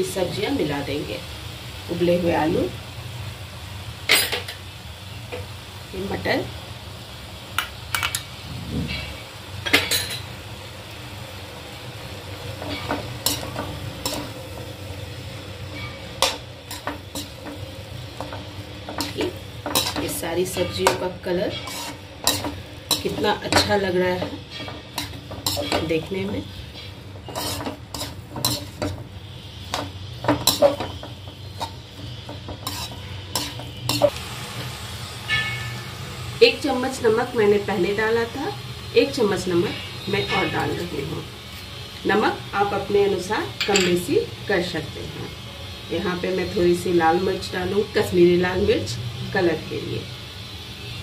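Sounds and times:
frying sizzle: 0.0 - 51.0
spatula scraping metal pan: 12.6 - 14.4, 15.6 - 29.0, 29.6 - 34.1
spatula clinking against pan: 43.6 - 44.0.

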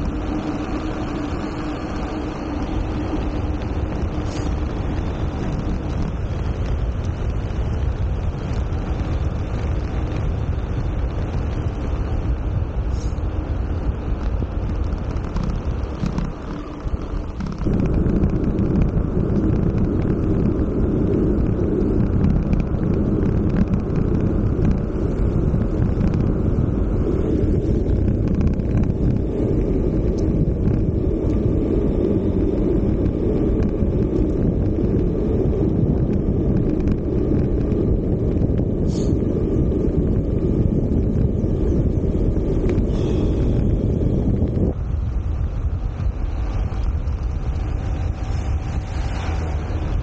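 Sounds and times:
wind buffeting microphone: 0.0 - 50.0.

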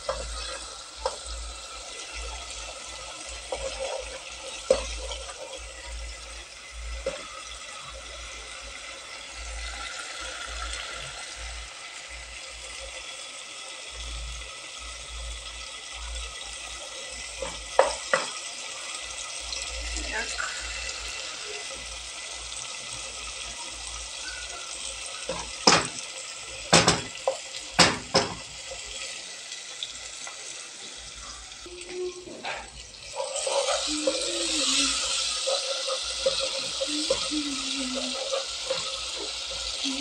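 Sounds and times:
food sizzling in a pan: 0.0 - 40.0
spoon knocking against pan: 17.4 - 18.4, 25.3 - 26.0, 26.7 - 28.5.

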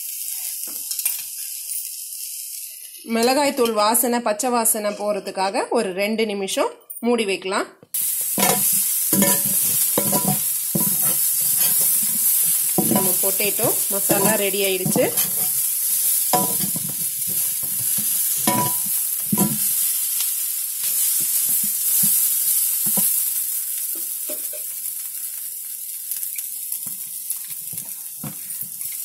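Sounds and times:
food sizzling in a pan: 0.0 - 4.8, 7.9 - 29.0
metal spatula scraping a pan: 8.3 - 20.0.

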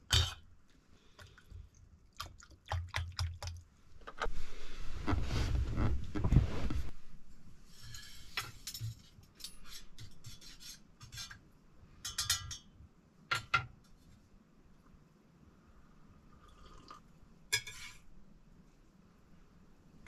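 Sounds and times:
scraping rubbing noise: 4.3 - 7.0
cutlery clinking against dishes: 12.0 - 12.7.

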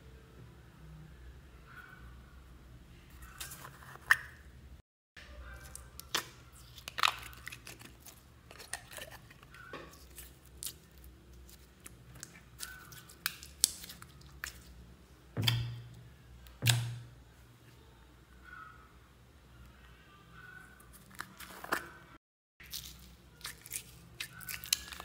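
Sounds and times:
slime squishing and crackling: 5.6 - 14.8, 22.6 - 25.0.

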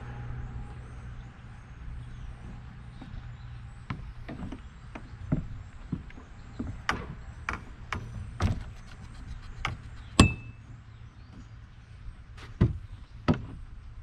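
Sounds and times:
low steady hum: 0.0 - 14.0
boat hull knocking and thudding: 3.8 - 8.8, 12.4 - 13.7
sharp ringing clank: 10.2 - 10.6.

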